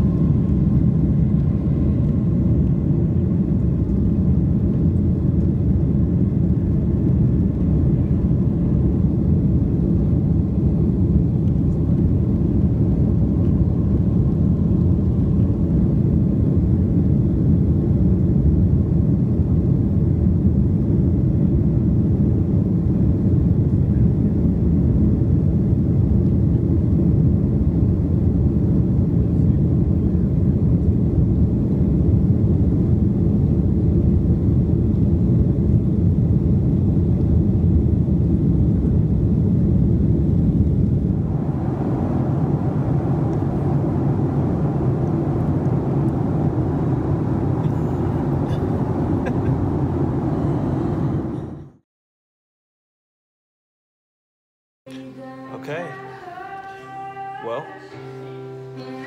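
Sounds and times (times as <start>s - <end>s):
jet engines rumbling: 0.0s - 51.8s
rushing air: 39.4s - 51.8s.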